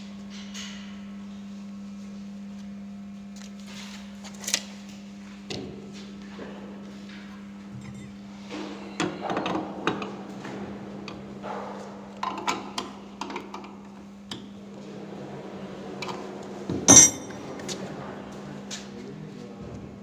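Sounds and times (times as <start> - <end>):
steady low hum: 5.1 - 12.0, 13.9 - 19.2
wrenches clanking on metal: 7.8 - 8.2, 16.9 - 17.5
loud metallic clank: 16.9 - 17.4.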